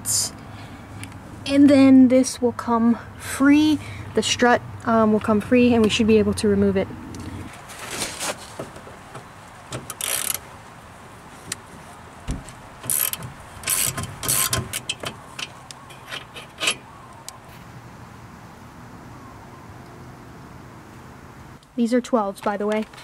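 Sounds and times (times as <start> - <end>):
small metallic clicks and knocks: 8.6 - 10.4, 12.3 - 17.3
ratchet wrench clicking: 9.9 - 10.4, 12.8 - 15.1.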